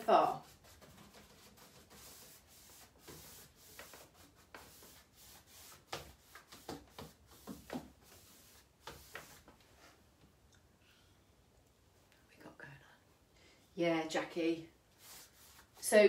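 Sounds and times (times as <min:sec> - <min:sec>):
paintbrush brushing on wood: 0:00.3 - 0:10.0, 0:15.0 - 0:16.0.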